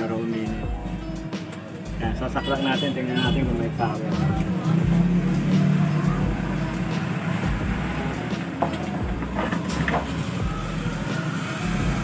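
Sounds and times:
low motor rumble: 0:03.5 - 0:12.0.

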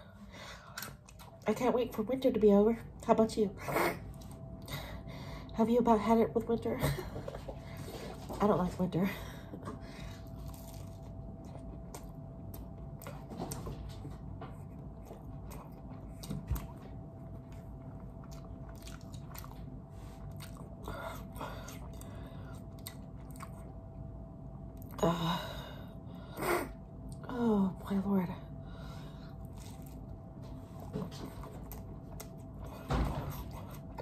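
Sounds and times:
faint steady hum: 0:00.0 - 0:34.0
person chewing food: 0:00.6 - 0:01.4, 0:09.6 - 0:24.0, 0:29.0 - 0:34.0.

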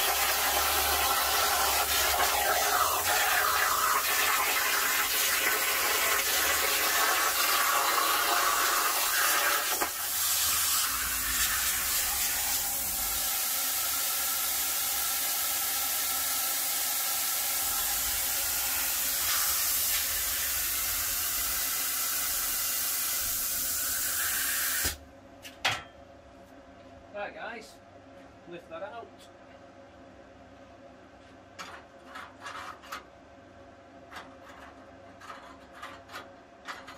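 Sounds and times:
plasma cutter hissing: 0:00.0 - 0:25.0.

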